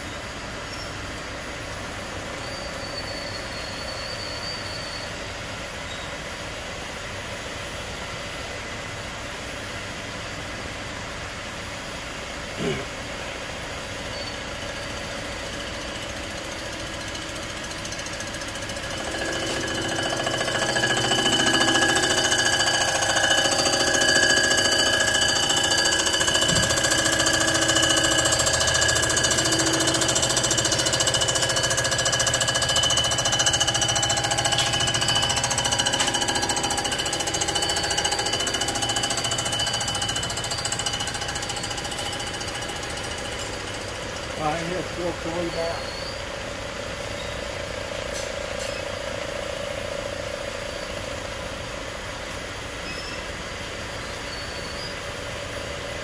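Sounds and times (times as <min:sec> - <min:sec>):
cutter ringing and chattering: 0:14.4 - 0:46.2
machine cutter whining: 0:14.8 - 0:46.3.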